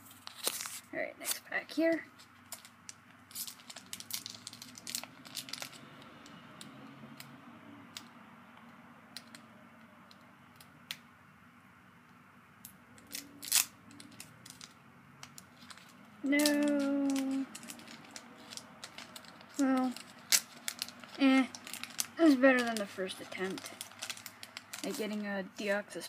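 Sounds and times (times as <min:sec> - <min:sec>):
foil wrapper crinkling and tearing: 0:00.0 - 0:01.5, 0:02.2 - 0:05.9, 0:13.0 - 0:25.3.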